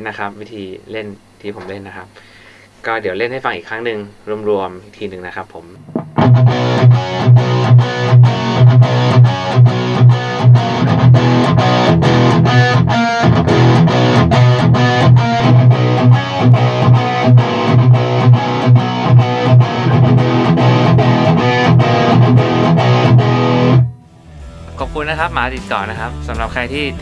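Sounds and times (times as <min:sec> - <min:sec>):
electric guitar through an amplifier: 0:05.8 - 0:25.0.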